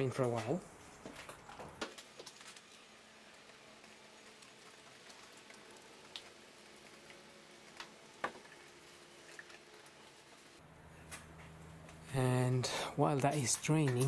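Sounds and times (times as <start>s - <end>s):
oil trickling into a pan: 2.2s - 10.3s.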